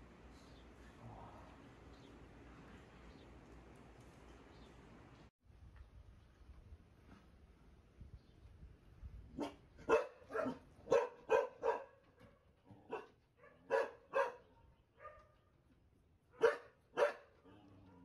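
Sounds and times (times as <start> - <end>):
dog barking: 9.4 - 15.4, 16.4 - 18.0.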